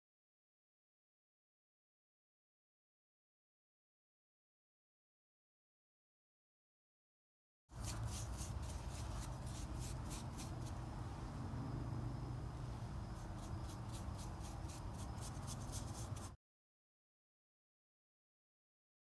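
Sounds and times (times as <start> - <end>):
blade scraping wood: 7.8 - 10.9, 13.2 - 16.4
low steady hum: 7.8 - 16.3.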